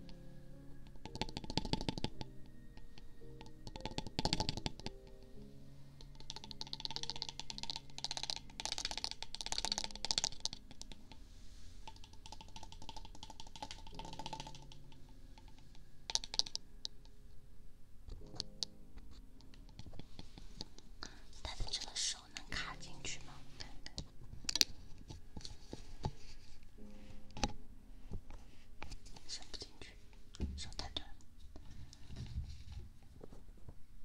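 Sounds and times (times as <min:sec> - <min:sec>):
soft background music: 0:00.0 - 0:34.0
tapping and scratching on microphone: 0:01.0 - 0:02.3, 0:06.2 - 0:11.2, 0:11.8 - 0:17.0, 0:18.1 - 0:22.8, 0:23.6 - 0:33.8.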